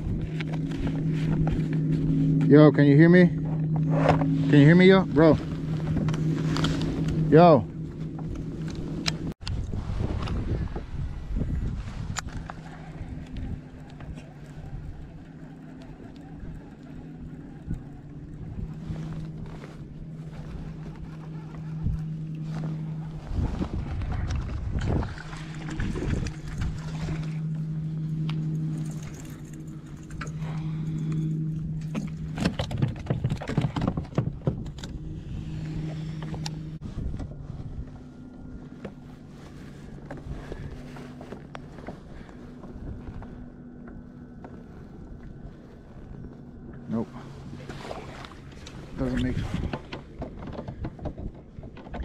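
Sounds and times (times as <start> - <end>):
electric trolling motor humming: 0.0 - 52.0
gear knocking and clattering: 31.8 - 35.0.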